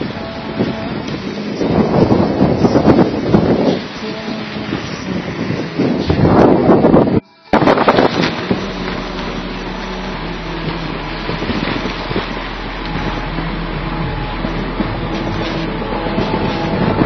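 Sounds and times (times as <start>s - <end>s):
wind noise on microphone: 0.0s - 17.0s
steady low hum: 6.1s - 17.0s.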